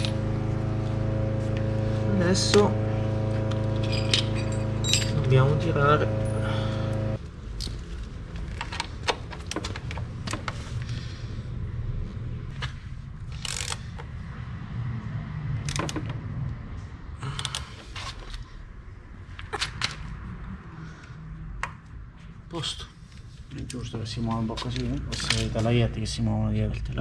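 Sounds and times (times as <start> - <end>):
low steady rumble: 0.0 - 8.1.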